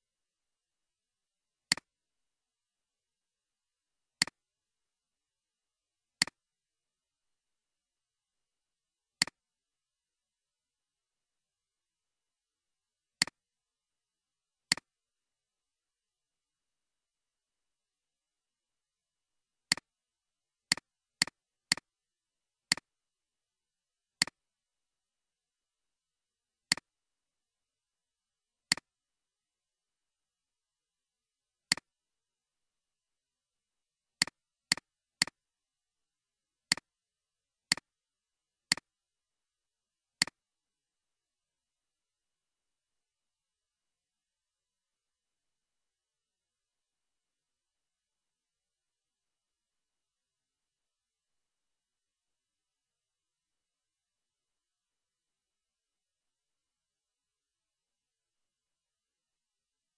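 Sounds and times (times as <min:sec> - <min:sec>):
computer mouse clicks: 0:01.7 - 0:01.9, 0:14.7 - 0:14.9, 0:19.7 - 0:19.9, 0:22.7 - 0:22.9, 0:26.7 - 0:26.9, 0:28.7 - 0:28.9, 0:31.7 - 0:31.9, 0:34.2 - 0:35.4, 0:36.7 - 0:36.9, 0:37.7 - 0:37.9, 0:38.7 - 0:38.9
mouse button clicks: 0:01.7 - 0:01.9.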